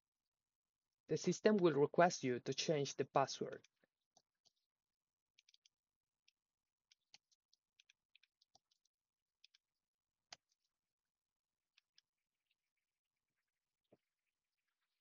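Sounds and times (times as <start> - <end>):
keyboard typing: 5.4 - 9.6.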